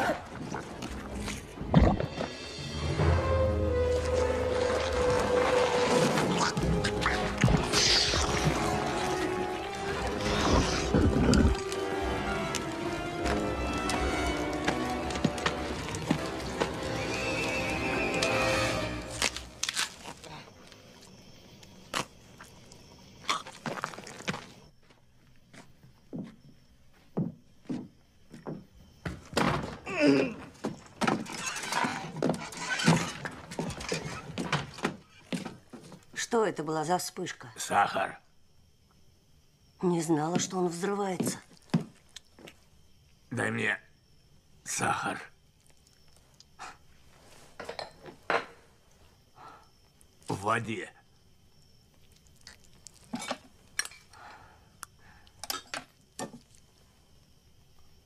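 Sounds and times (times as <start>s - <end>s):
slow heavy footsteps: 3.9s - 18.3s
wooden screen door creaking: 30.6s - 35.7s.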